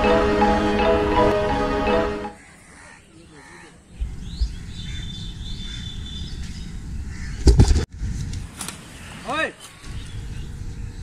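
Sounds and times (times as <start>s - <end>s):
birds chirping: 1.6s - 7.4s.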